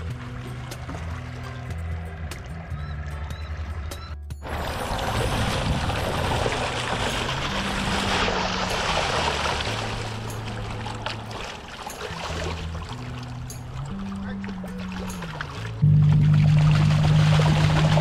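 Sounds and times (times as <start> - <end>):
fish splashing in shallow water: 4.4 - 18.0.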